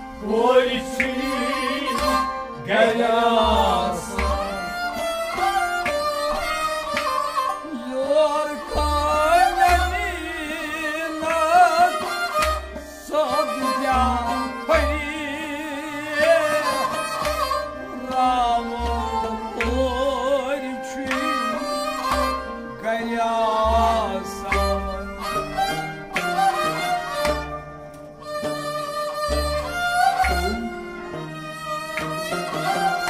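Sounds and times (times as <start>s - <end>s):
bowed string instrument: 0.0s - 33.0s
harmonium chords: 0.0s - 33.0s
man singing: 0.1s - 4.9s, 7.6s - 12.4s, 13.0s - 22.1s, 22.7s - 25.3s.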